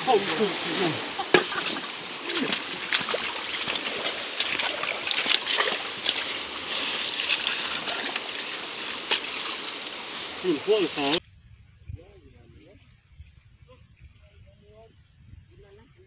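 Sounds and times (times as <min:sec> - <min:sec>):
splashes in muddy water: 0:00.0 - 0:11.2
stream water running over stones: 0:00.0 - 0:11.2.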